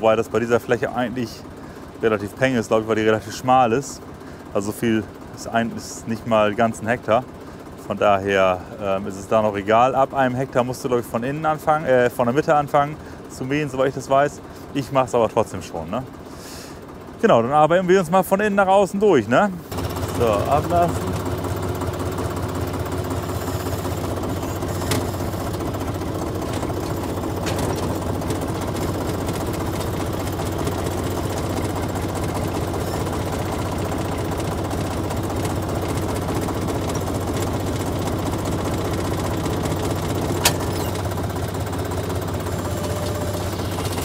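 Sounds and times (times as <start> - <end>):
tractor diesel engine running: 0.0 - 44.0.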